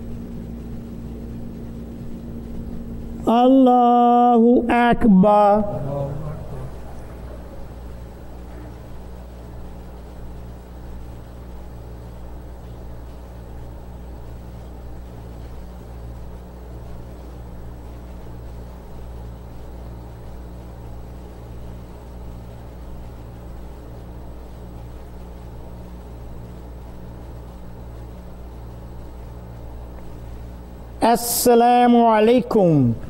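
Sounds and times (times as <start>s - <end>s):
low hum with faint hiss: 0.0s - 33.0s.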